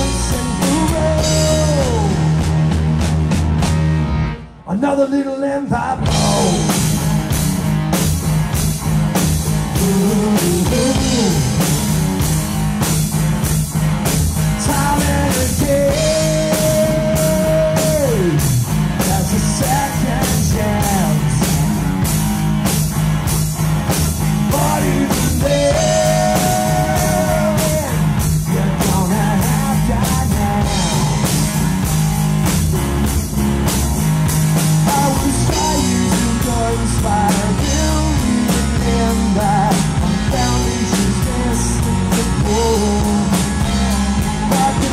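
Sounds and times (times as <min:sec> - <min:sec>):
male lead vocal: 0:00.0 - 0:02.5, 0:04.6 - 0:07.1, 0:09.6 - 0:12.4, 0:14.5 - 0:22.1, 0:24.4 - 0:31.5, 0:34.8 - 0:44.9
drum kit beat: 0:00.0 - 0:04.1, 0:06.0 - 0:44.9
electric guitar: 0:00.0 - 0:04.8, 0:05.8 - 0:44.9
bass guitar: 0:00.0 - 0:44.9.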